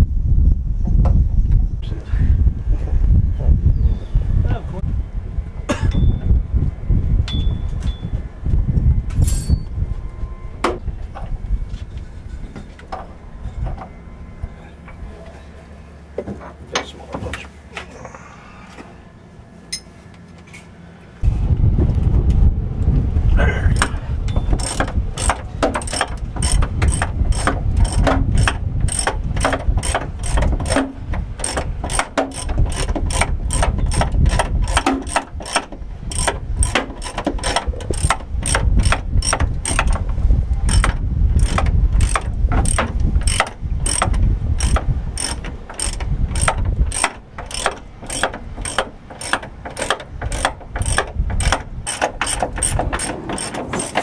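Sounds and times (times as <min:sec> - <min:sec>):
low rumble: 0:00.0 - 0:15.9, 0:21.2 - 0:36.7
ratchet wrench clicking: 0:24.6 - 0:40.0, 0:40.7 - 0:54.0.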